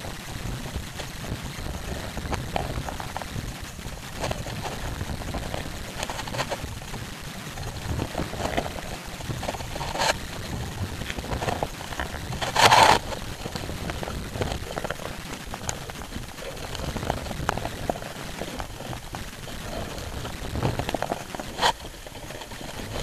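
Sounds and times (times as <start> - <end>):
wind on microphone: 0.0 - 23.0
oar strokes rushing: 7.5 - 23.0.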